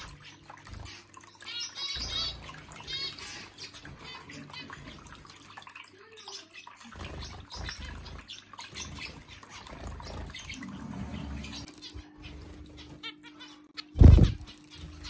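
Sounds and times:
fountain water trickling: 0:00.0 - 0:11.8.

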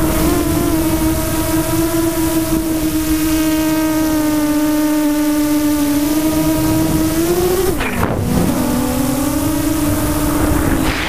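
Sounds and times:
electric motor and propeller whining: 0:00.0 - 0:11.0
rush of air: 0:09.8 - 0:11.0.

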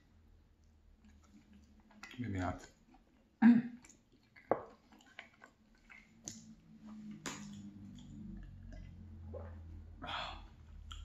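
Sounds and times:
low steady hum: 0:00.0 - 0:11.0
chewing with mouth clicks: 0:00.6 - 0:09.8, 0:10.7 - 0:11.0
wet mouth noise licking fingers: 0:02.8 - 0:09.8, 0:10.7 - 0:11.0.

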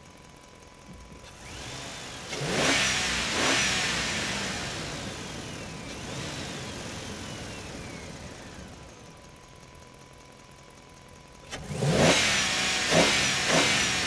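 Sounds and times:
vehicle engine revving: 0:01.3 - 0:08.9, 0:11.5 - 0:14.0.

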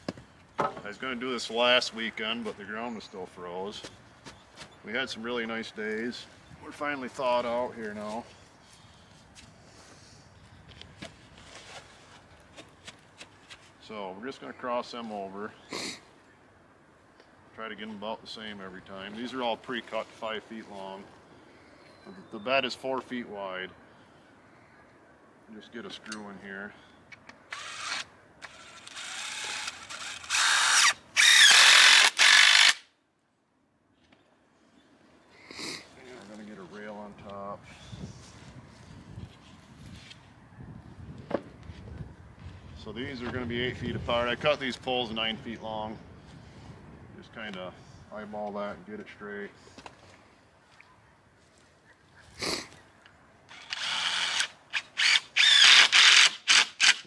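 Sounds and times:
cordless drill driving screw: 0:27.5 - 0:32.9, 0:53.5 - 0:57.0.

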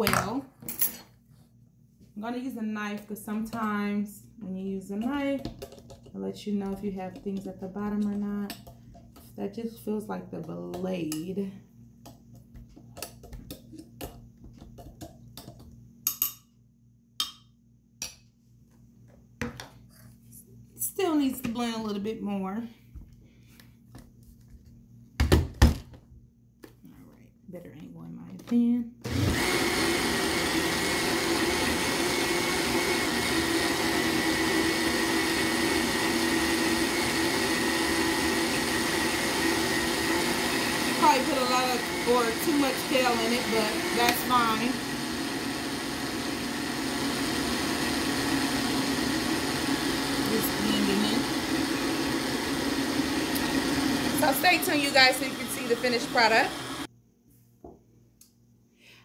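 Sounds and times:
blender running: 0:29.0 - 0:56.9.

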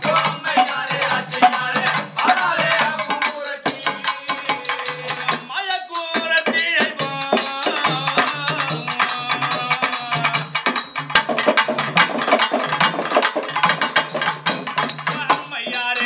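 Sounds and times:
man singing: 0:00.0 - 0:10.8, 0:15.1 - 0:16.0
fast folk drumming: 0:00.0 - 0:16.0.

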